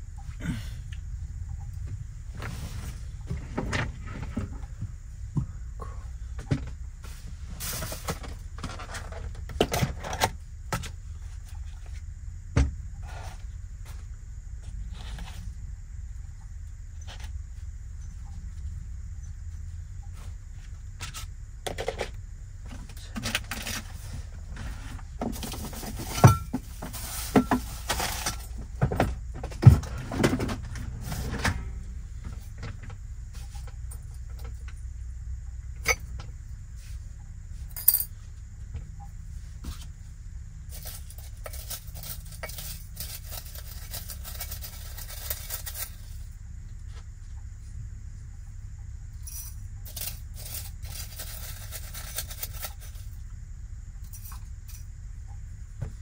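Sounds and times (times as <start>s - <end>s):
low steady hum: 0.0s - 56.0s
dry tea leaves rustling: 40.8s - 46.1s.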